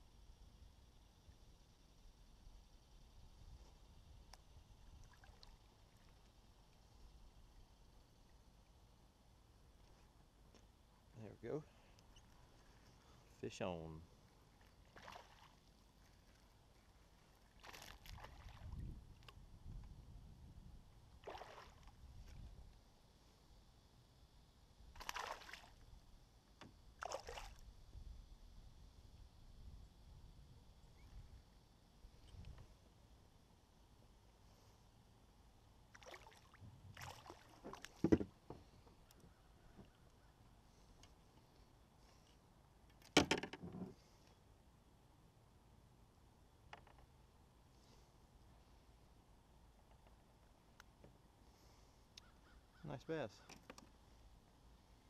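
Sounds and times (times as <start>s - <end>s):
fish splashing in water: 21.2s - 21.9s, 25.0s - 25.8s, 27.0s - 27.6s, 35.9s - 38.0s.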